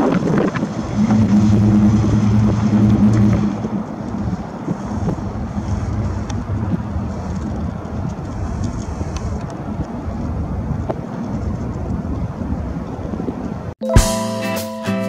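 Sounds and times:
car engine driving past: 0.7 - 6.1.

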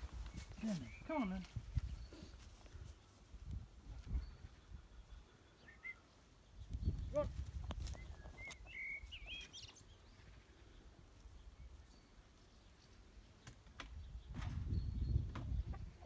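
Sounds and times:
high bird chirps: 7.9 - 10.4.

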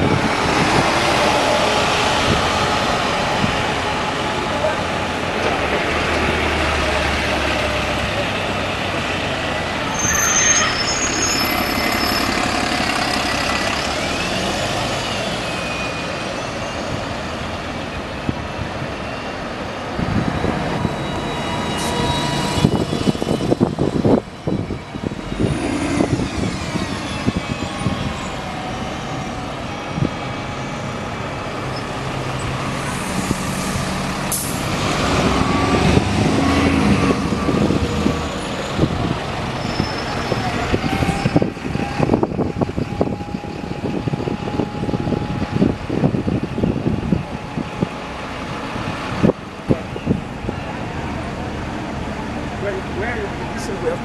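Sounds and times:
diesel buses idling and pulling away: 0.0 - 54.0
engine whine: 11.4 - 39.6.

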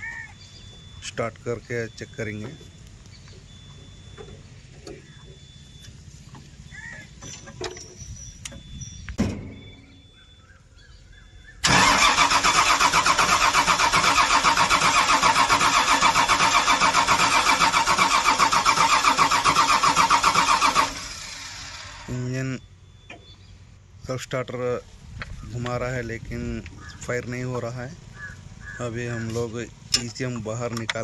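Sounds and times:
starter motor cranking engine: 11.6 - 22.2.

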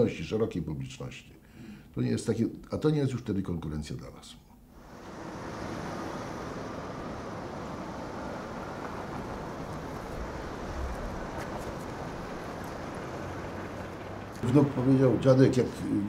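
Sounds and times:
city traffic noise: 4.8 - 16.0.

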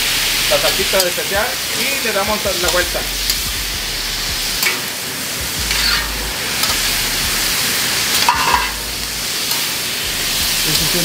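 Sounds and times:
onions and bacon sizzling: 0.0 - 11.0
metal spatula scraping griddle: 0.4 - 10.7
spatula clatter: 4.6 - 5.0, 5.6 - 6.9, 8.0 - 8.8.

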